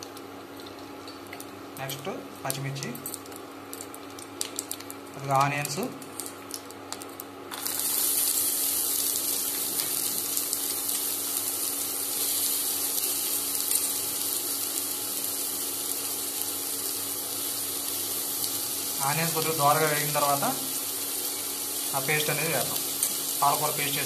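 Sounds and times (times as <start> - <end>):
spices crackling in oil: 0.0 - 24.0
onions sizzling in hot oil: 7.5 - 24.0.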